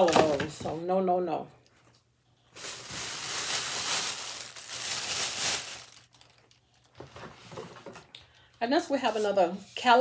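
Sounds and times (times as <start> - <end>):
bag rustling and crinkling: 2.5 - 7.0.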